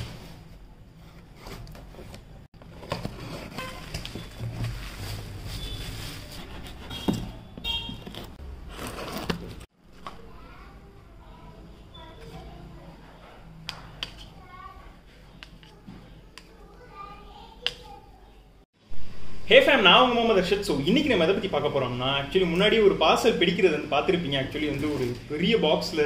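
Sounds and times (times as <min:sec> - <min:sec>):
packaging rustling and crinkling: 0:01.4 - 0:07.1, 0:08.0 - 0:09.7.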